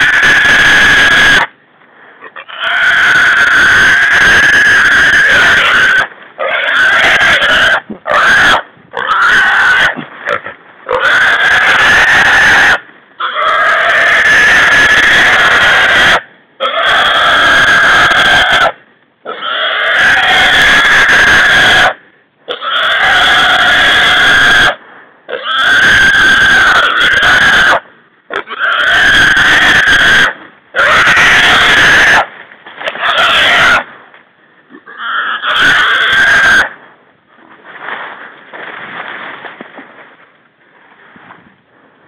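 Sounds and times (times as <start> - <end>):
hog squealing: 34.9 - 36.7.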